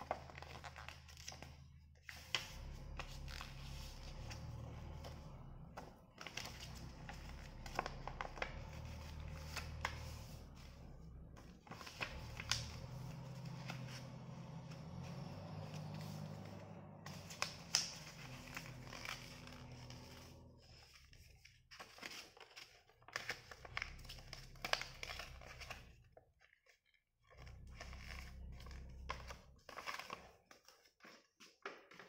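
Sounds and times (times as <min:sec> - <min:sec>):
low background hum: 0:00.0 - 0:21.6
paper rustling and crinkling: 0:00.0 - 0:25.9, 0:27.4 - 0:32.0.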